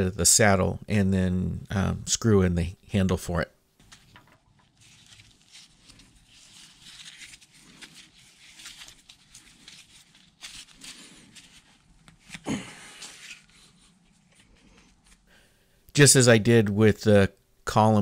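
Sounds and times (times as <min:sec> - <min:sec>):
gloved hands rustling: 0:03.8 - 0:15.4.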